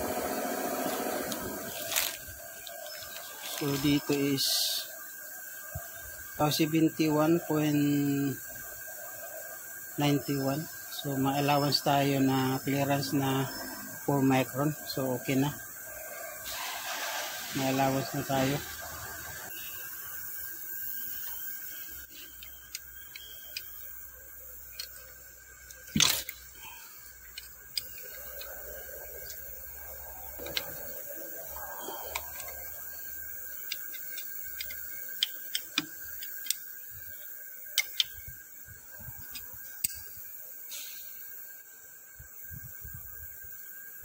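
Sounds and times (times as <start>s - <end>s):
grinder whining: 0.0s - 4.2s.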